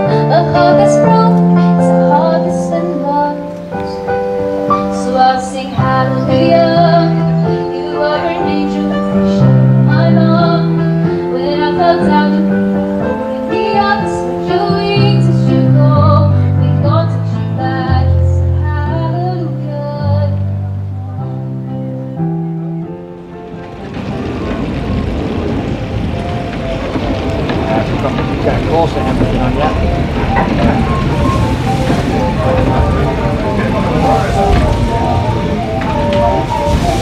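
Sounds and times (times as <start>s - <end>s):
woman singing with instruments: 0.0s - 4.1s, 4.8s - 21.8s.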